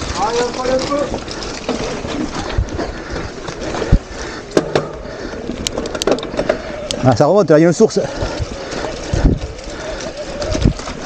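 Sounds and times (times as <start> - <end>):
bike knocks and rattles: 0.0 - 6.7
wind and tyre noise: 0.0 - 11.0.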